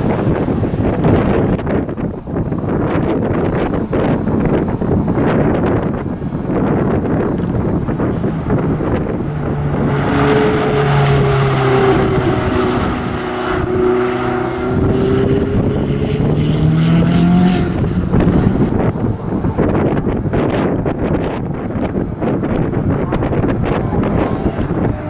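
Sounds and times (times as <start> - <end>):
sports car engine accelerating: 0.0 - 25.0
wind buffeting microphone: 0.0 - 25.0.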